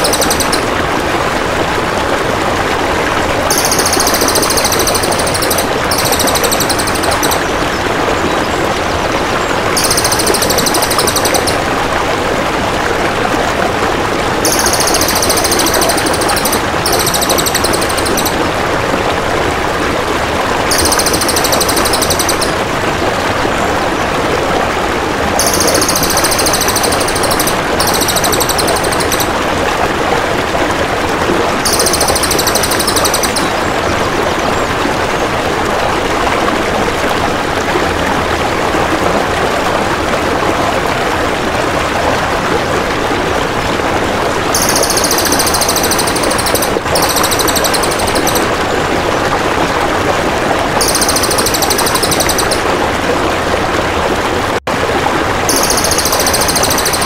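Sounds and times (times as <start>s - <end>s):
bird rattling trill calls: 0.0s - 0.8s, 3.5s - 7.8s, 9.8s - 11.6s, 14.4s - 18.5s, 20.7s - 22.6s, 25.4s - 29.4s, 31.7s - 33.7s, 44.6s - 48.6s, 50.8s - 52.7s, 55.5s - 57.0s
water flowing: 0.0s - 57.0s.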